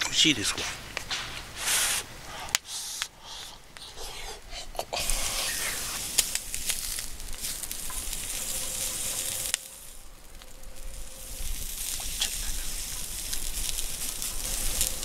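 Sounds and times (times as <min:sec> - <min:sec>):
sharp pops: 0:00.0 - 0:04.0, 0:04.9 - 0:08.2
meat sizzling on grill: 0:05.0 - 0:15.0.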